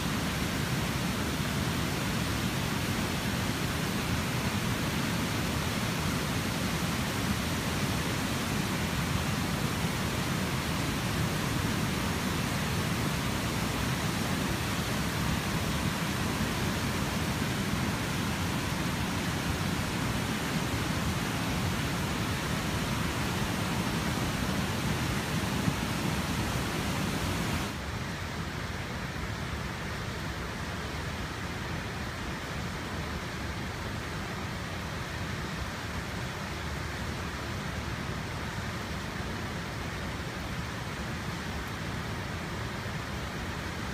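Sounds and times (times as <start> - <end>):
flood water rushing: 0.0 - 28.1.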